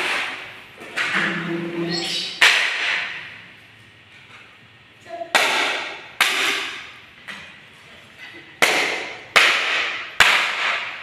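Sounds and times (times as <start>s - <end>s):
ceiling board pieces crashing on tiles: 0.0s - 1.2s, 2.4s - 3.2s, 5.3s - 6.9s, 8.6s - 11.0s.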